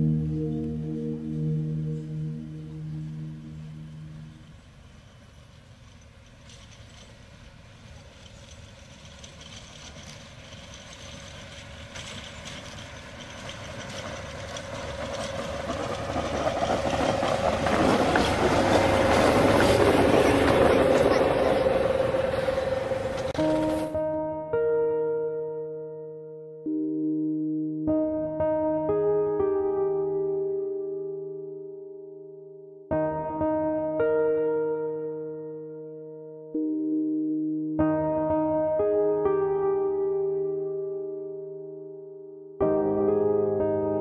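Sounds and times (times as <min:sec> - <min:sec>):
diesel locomotive engine drone: 0:00.0 - 0:24.0
wheels on rails: 0:04.5 - 0:23.9.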